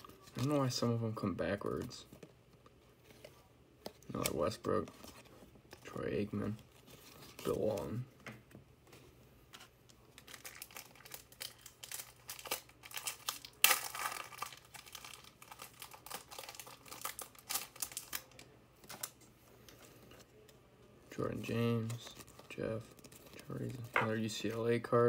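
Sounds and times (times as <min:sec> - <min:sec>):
card pack wrapper tearing and crinkling: 0:10.1 - 0:19.2.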